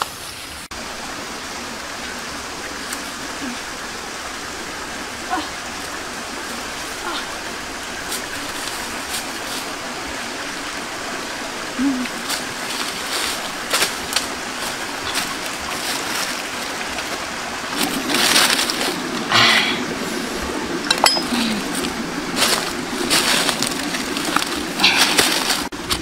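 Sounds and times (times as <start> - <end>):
steady background hiss: 0.0 - 26.0
dry leaves rustling underfoot: 5.3 - 26.0
stones and sticks clicking: 20.8 - 26.0.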